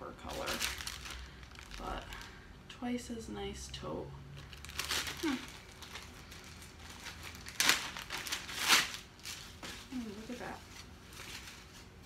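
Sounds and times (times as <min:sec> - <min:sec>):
plastic bag crinkling: 0:00.1 - 0:02.4, 0:04.4 - 0:12.0.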